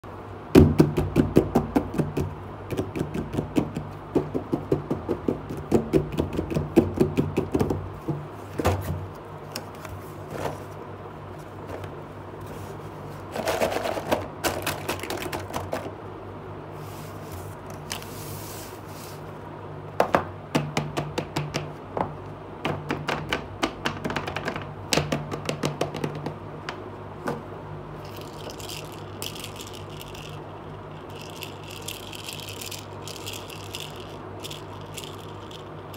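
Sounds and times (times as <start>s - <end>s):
plastic toy pieces rattling: 13.3s - 15.9s, 28.0s - 35.9s.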